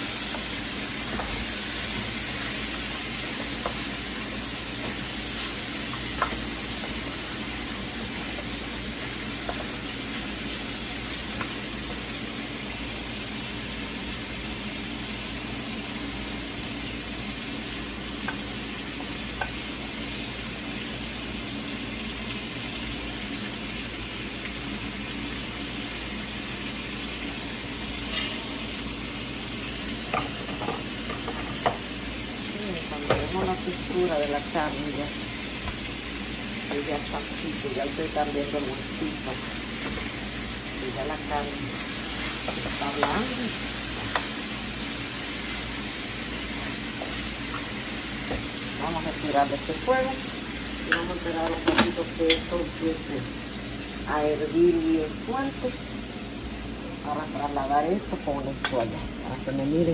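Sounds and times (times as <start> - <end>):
meat sizzling in a frying pan: 0.0 - 59.9.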